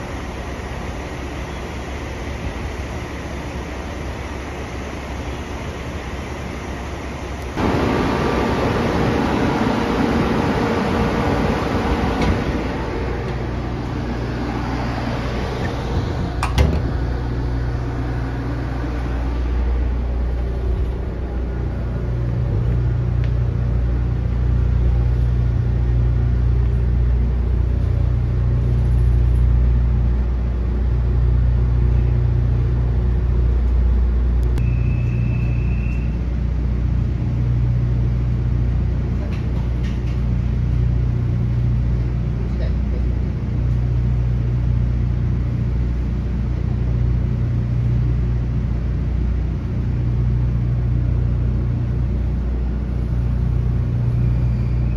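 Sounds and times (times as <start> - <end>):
electric train equipment hum: 0.0 - 54.9
short high beep: 34.6 - 36.1.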